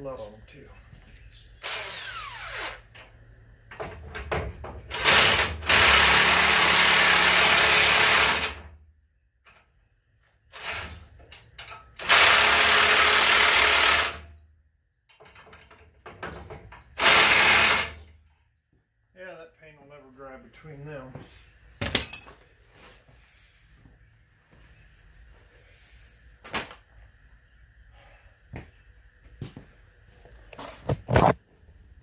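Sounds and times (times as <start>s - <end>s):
cordless impact wrench running: 4.9s - 8.6s, 12.0s - 14.2s, 17.0s - 18.0s.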